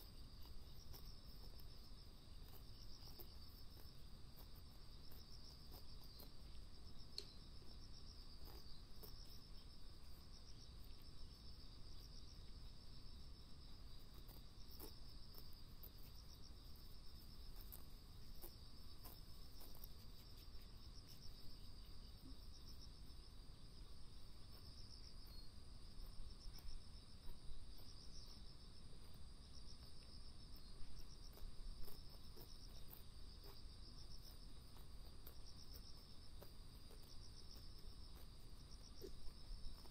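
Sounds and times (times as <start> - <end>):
insects chirping: 0.0 - 39.9.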